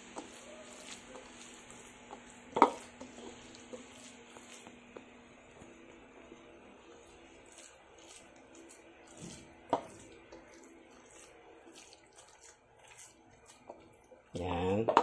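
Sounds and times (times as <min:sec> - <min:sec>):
hand squishing raw meat: 0:07.4 - 0:14.6.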